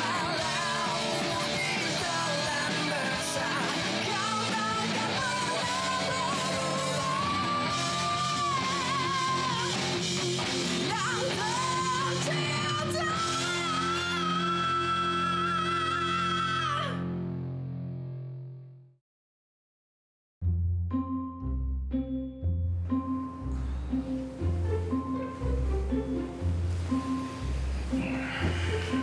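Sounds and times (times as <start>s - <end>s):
person singing: 0.0s - 10.0s, 10.8s - 17.0s, 27.9s - 29.0s
guitar rock music: 0.0s - 18.6s.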